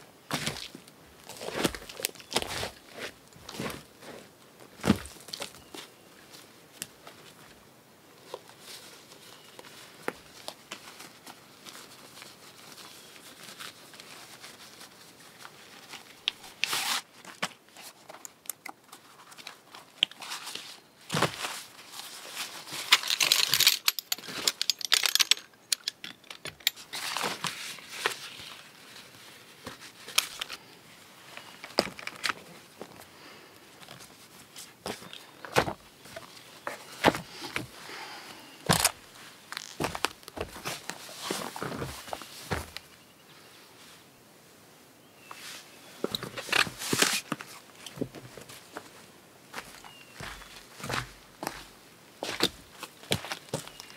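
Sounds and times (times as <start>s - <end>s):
fabric rustling and crinkling: 0.3s - 7.6s, 8.2s - 25.4s, 26.6s - 33.1s, 33.7s - 42.9s
folding poles clicking: 22.8s - 27.6s.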